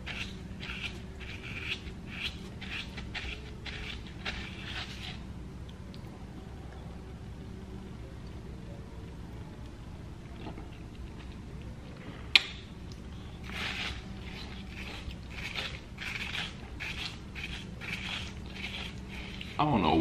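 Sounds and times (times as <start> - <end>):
spoon scraping ice: 0.0 - 5.2, 13.4 - 19.6
room hum: 0.0 - 20.0
person eating icy dessert: 12.9 - 19.6.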